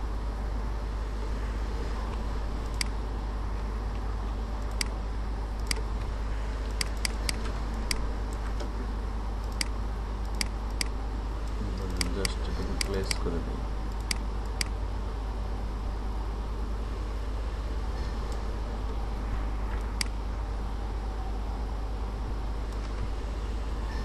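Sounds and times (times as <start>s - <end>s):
room noise hum and hiss: 0.0s - 24.0s
computer mouse clicking: 2.6s - 2.9s, 4.6s - 5.0s, 5.6s - 5.9s, 6.7s - 8.7s, 9.4s - 13.3s, 13.9s - 14.8s, 19.8s - 20.2s.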